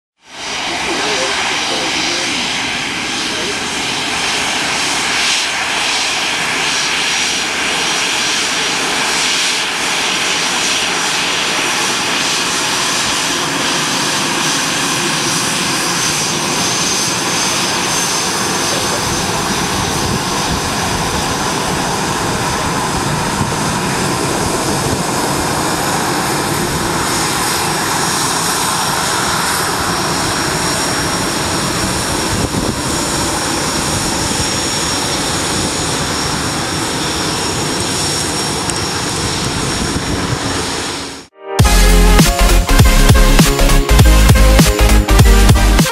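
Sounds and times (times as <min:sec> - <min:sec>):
jet engines whining at taxi power: 0:00.2 - 0:45.9.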